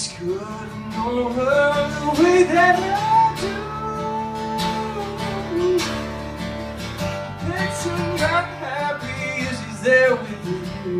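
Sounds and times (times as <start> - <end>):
man singing: 0.0 - 6.5, 7.4 - 10.9
acoustic guitar strumming: 0.0 - 10.9.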